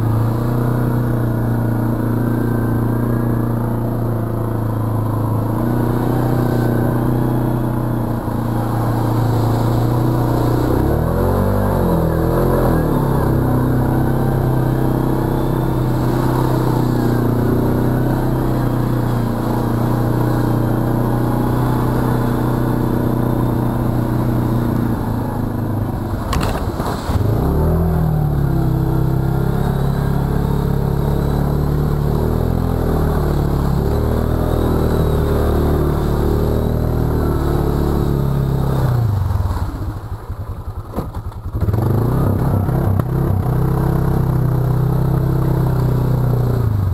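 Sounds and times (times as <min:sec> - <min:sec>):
atv engine running: 0:00.0 - 0:46.9
crash of mud and water: 0:26.0 - 0:28.2.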